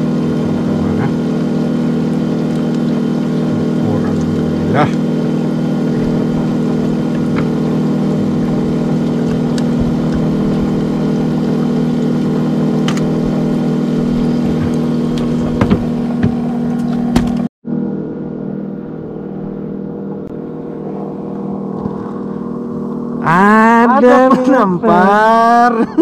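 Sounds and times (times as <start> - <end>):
boat engine humming: 0.0 - 26.0.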